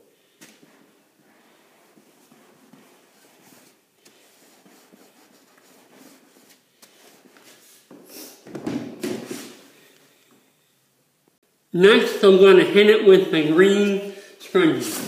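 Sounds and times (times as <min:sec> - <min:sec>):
broom scrubbing wet floor: 0:00.6 - 0:08.4.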